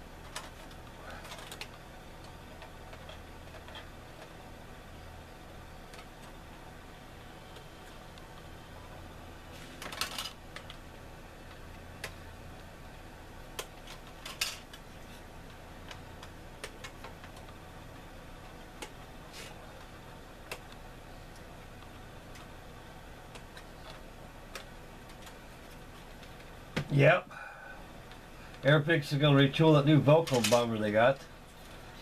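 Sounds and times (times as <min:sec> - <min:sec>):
faint low hum: 0:00.0 - 0:32.0
plastic parts clicking and clattering: 0:00.2 - 0:04.3, 0:09.8 - 0:10.8, 0:13.6 - 0:15.2, 0:30.2 - 0:30.8.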